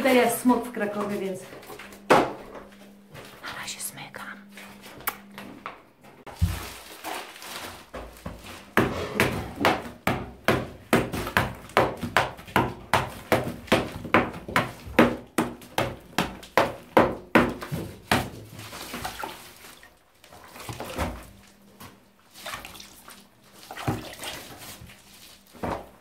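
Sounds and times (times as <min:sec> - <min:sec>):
hammer chipping plaster: 0:08.2 - 0:19.0.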